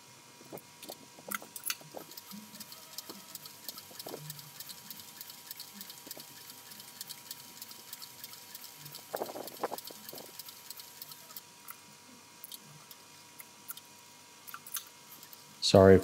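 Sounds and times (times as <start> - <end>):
sewing machine stitching leather: 1.8 - 11.4.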